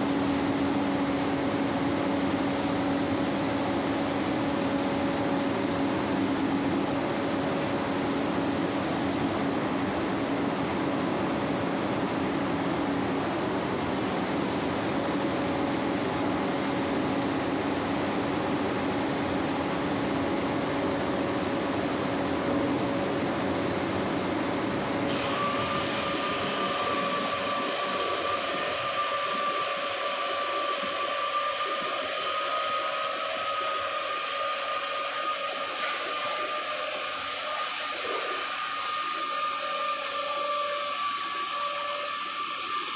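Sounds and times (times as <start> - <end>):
steady high whine: 0.0 - 42.9.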